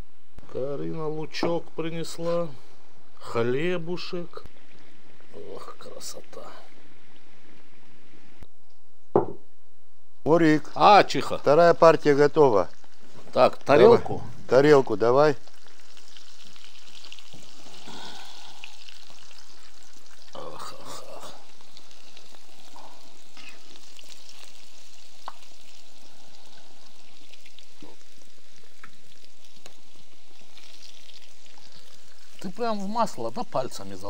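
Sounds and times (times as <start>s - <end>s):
food sizzling in hot oil: 3.5s - 8.4s, 10.3s - 34.0s.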